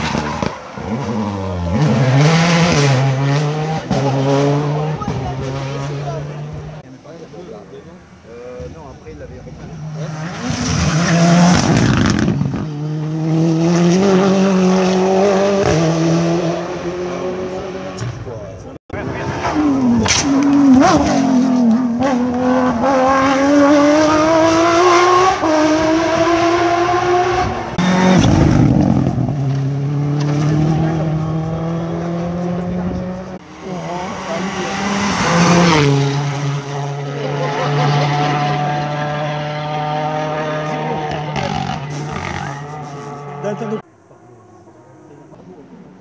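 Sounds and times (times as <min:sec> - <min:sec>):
rally car engine revving with gear shifts: 0:00.0 - 0:06.9, 0:09.5 - 0:43.9
car passing by: 0:33.5 - 0:43.8.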